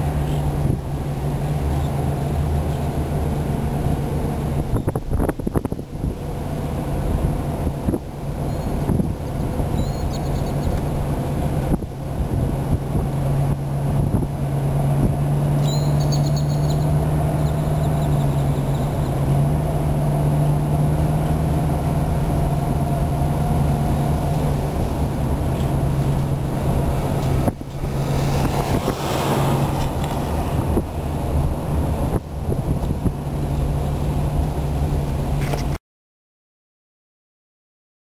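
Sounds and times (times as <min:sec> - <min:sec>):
car engine hum inside cabin: 0:00.0 - 0:35.8
tyre road noise: 0:00.0 - 0:35.8
rushing noise: 0:16.8 - 0:35.5.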